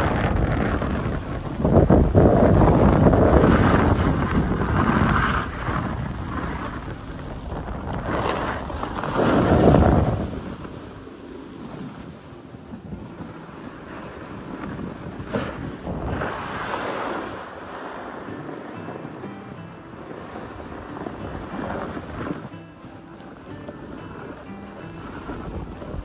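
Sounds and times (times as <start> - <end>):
wind rushing over microphone: 0.0 - 26.0
snow hissing under skis: 2.6 - 12.1, 13.6 - 18.7.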